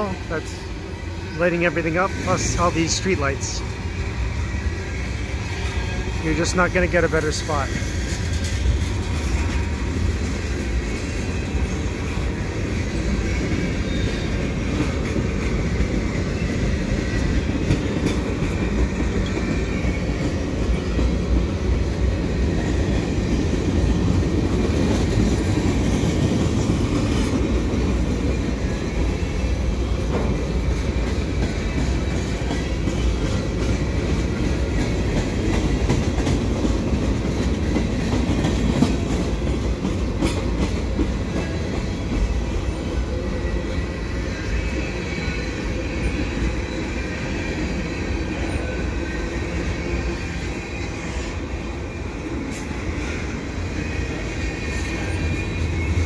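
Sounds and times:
steel wheels rumbling on rail: 0.0 - 56.0
wheels clicking over rail joints: 7.4 - 43.0.

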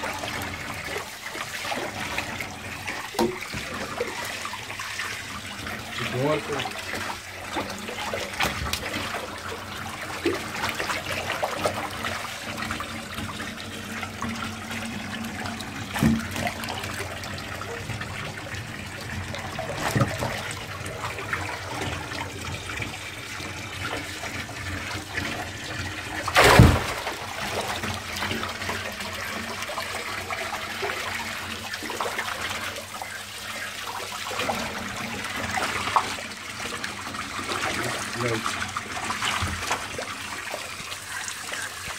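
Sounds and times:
bubbling water: 0.0 - 41.9
fish splashing at water surface: 26.2 - 30.0.

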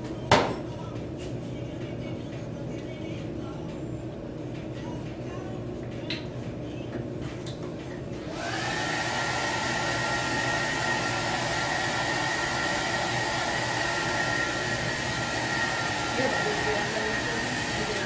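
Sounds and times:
hair dryer running: 8.0 - 18.0.

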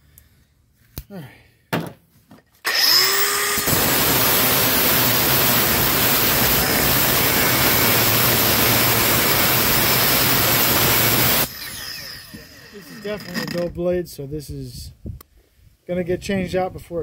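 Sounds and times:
angle grinder cutting steel: 2.6 - 13.7.

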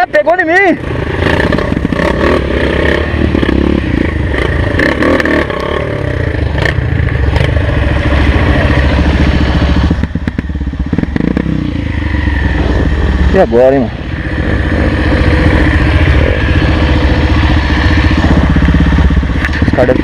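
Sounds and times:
motorcycle engine climbing: 0.0 - 20.0
knocks and scraping clatter: 19.4 - 20.0.

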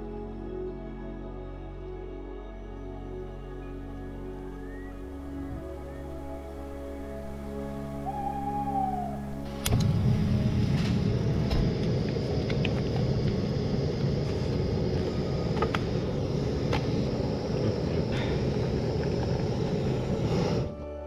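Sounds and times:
motorcycle engine rumble: 8.7 - 20.8.

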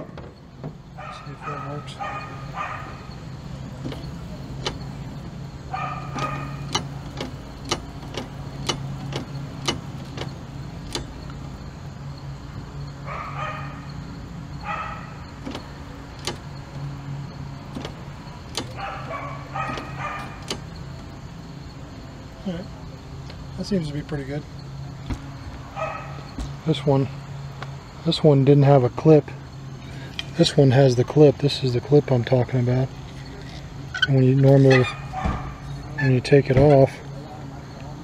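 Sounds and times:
windshield wipers humming: 0.0 - 27.5
dog barking: 1.0 - 3.1, 5.7 - 6.7, 13.0 - 13.9, 14.6 - 15.2, 18.8 - 20.4, 25.8 - 26.3, 34.7 - 35.6
wiper linkage clicks: 3.8 - 5.4, 6.0 - 11.4, 15.4 - 16.9, 17.7 - 18.8, 19.6 - 21.1.

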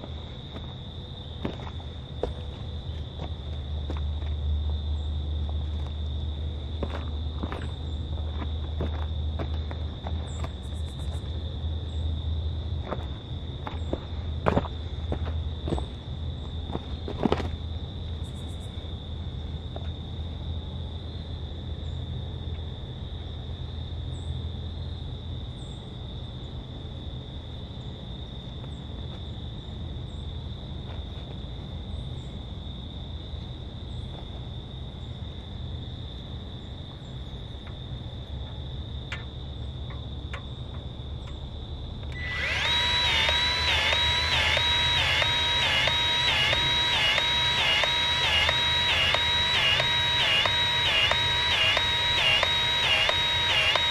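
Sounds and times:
insects droning: 0.0 - 53.9
low hum: 41.2 - 53.9
sharp click: 42.1 - 53.9.

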